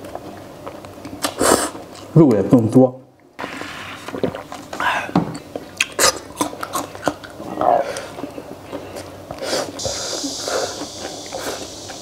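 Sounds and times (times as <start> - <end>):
person chewing noodles: 4.2 - 12.0.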